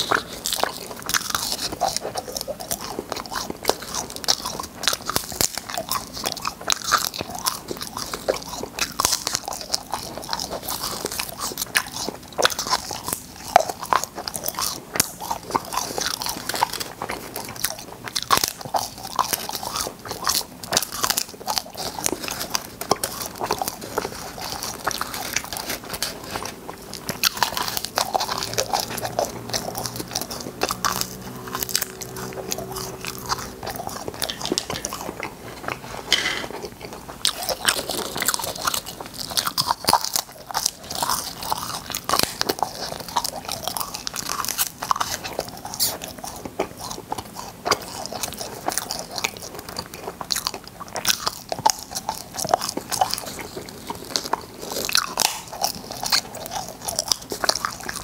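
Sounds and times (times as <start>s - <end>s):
candy crunching: 0.0s - 58.0s
chewing: 0.0s - 58.0s.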